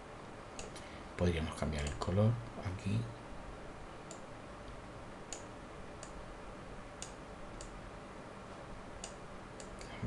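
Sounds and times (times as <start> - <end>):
faint steady hiss: 0.0 - 10.0
computer mouse clicking: 0.6 - 0.8, 1.8 - 2.1, 4.0 - 6.2, 7.0 - 7.8, 9.0 - 9.9.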